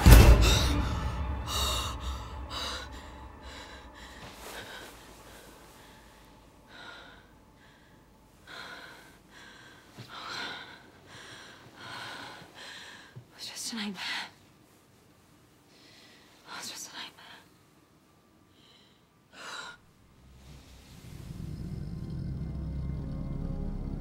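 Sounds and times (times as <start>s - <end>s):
woman breathing heavily: 0.0s - 13.3s, 15.7s - 17.5s, 18.4s - 21.1s.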